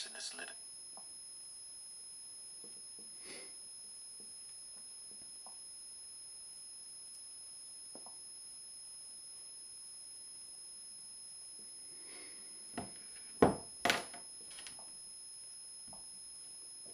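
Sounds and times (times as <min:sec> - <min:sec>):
faint high-pitched whine: 0:00.0 - 0:16.9
objects knocking on a tabletop: 0:12.8 - 0:14.8.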